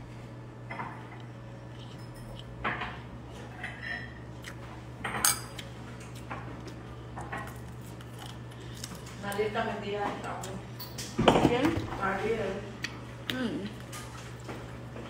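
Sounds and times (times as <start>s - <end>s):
steady low hum: 0.0s - 15.0s
dishes and cutlery clinking: 5.0s - 5.6s.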